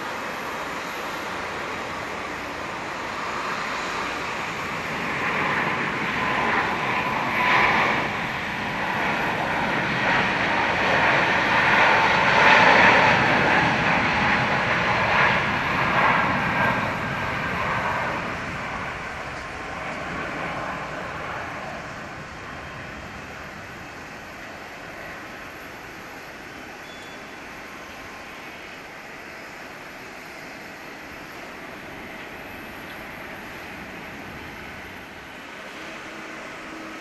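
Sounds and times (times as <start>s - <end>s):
jet airliner passing: 0.0s - 37.0s.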